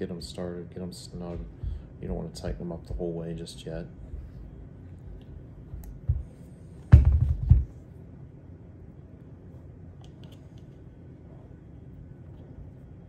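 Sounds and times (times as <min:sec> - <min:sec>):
knocks on rubber mat: 0:06.9 - 0:07.7.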